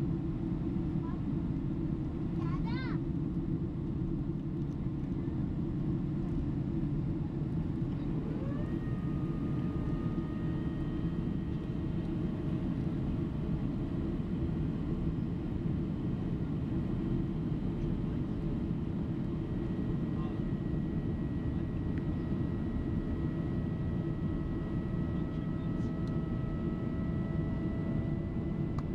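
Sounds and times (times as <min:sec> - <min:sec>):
airliner cabin roar: 0:05.2 - 0:28.9
rising whine: 0:07.8 - 0:13.5.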